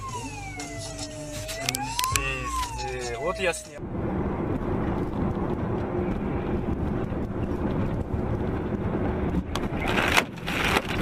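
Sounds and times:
vehicle driving on wet road: 3.8s - 11.0s.

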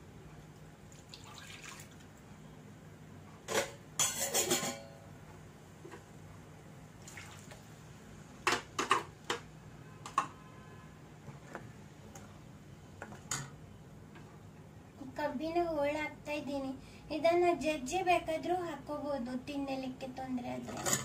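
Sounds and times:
ladle clinking and scraping a pan: 3.5s - 4.9s, 20.6s - 21.0s.

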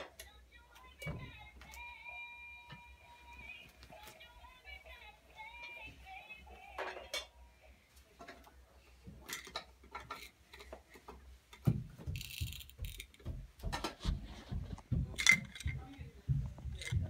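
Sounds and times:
footsteps on carpeted stairs: 11.2s - 17.0s.

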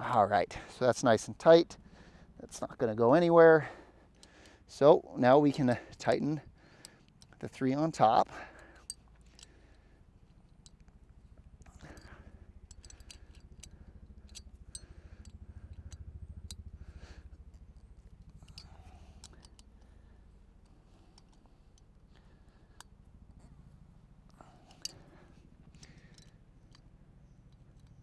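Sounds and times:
low steady rumble: 0.0s - 28.0s
wrench clicking on bolts: 11.8s - 16.6s, 17.5s - 19.9s.

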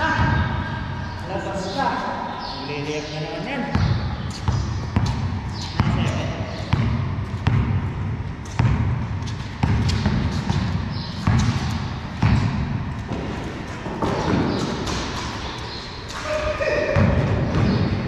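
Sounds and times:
basketball bouncing on concrete: 3.7s - 15.5s, 16.8s - 18.0s.

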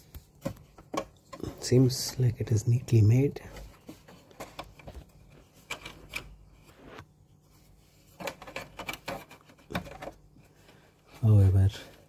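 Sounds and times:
plastic casing handling scrapes: 3.4s - 10.8s.

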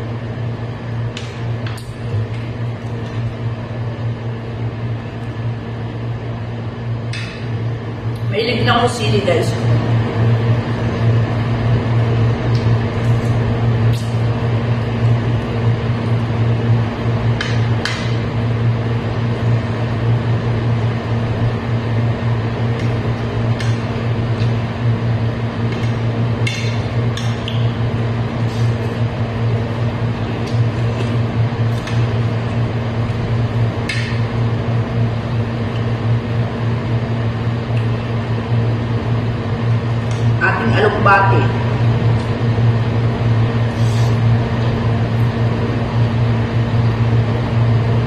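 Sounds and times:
loud steady low hum: 0.0s - 48.0s.

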